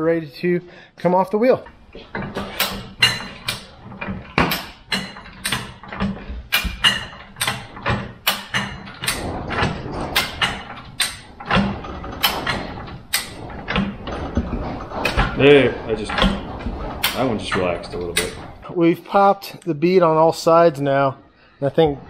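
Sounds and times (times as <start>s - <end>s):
tire and wheel creaking and knocking: 1.5s - 18.7s.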